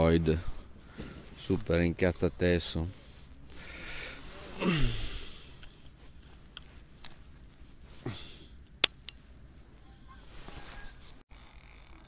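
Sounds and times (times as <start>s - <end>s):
person grunting: 4.6s - 5.3s.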